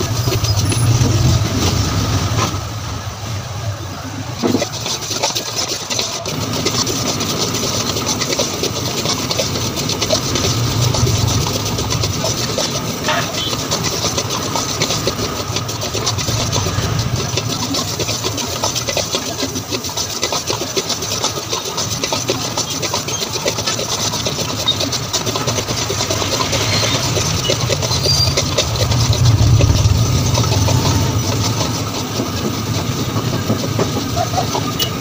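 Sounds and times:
steady low rumble: 0:25.7 - 0:32.6.

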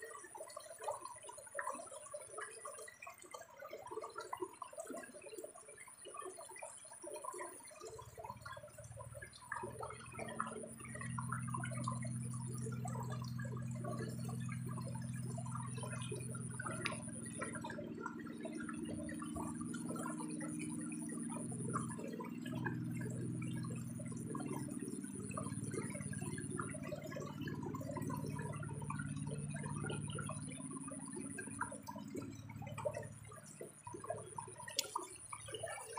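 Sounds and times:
water splashing and dripping: 0:00.1 - 0:35.9
steady low hum: 0:08.3 - 0:35.9.

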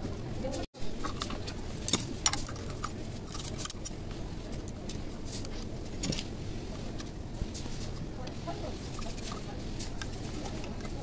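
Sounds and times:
low background noise: 0:00.0 - 0:11.0
metallic clicks and clinks: 0:01.0 - 0:04.0.

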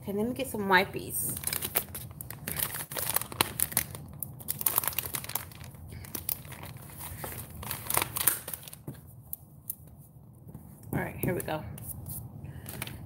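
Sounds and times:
plastic packet crinkling: 0:01.3 - 0:08.9.

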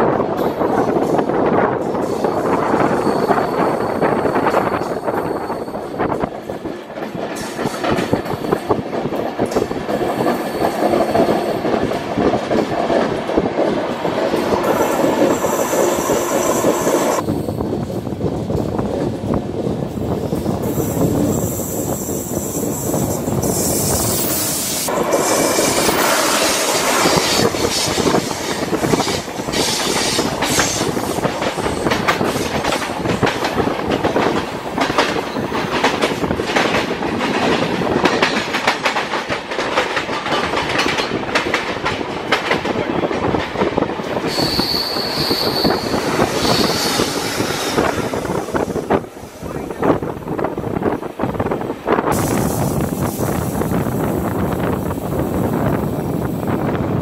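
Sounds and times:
train wheel clatter over rails: 0:00.0 - 0:17.2, 0:22.9 - 0:49.3
passing train alongside: 0:00.0 - 0:57.0
rushing wind: 0:00.0 - 0:57.0
high wheel squeal: 0:02.2 - 0:06.1, 0:44.3 - 0:48.7.

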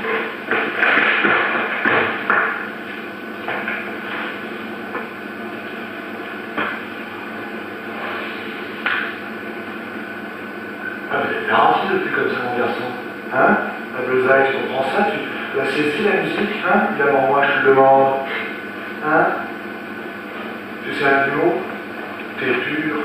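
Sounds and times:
background hiss and hum: 0:00.0 - 0:23.0
knocks and thuds: 0:00.5 - 0:02.6.

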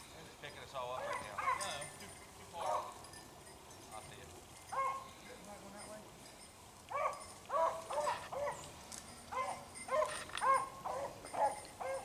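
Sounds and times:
distant hounds yelping: 0:00.9 - 0:03.3, 0:04.5 - 0:05.2, 0:06.8 - 0:12.0.

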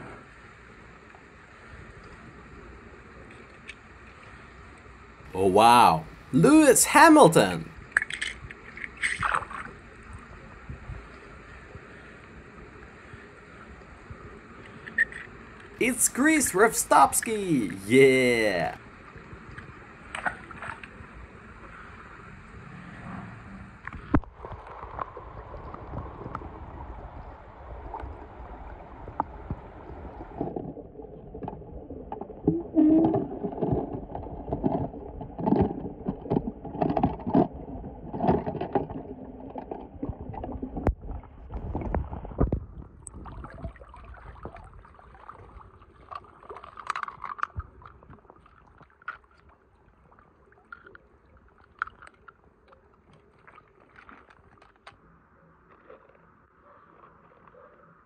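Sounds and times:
underwater sloshing and gurgling: 0:19.0 - 0:58.0.

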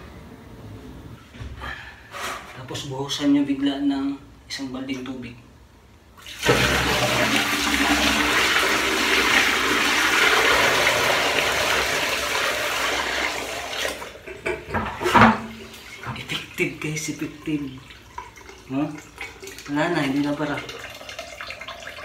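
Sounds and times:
water rushing down a drain: 0:06.2 - 0:14.2, 0:15.5 - 0:22.0.

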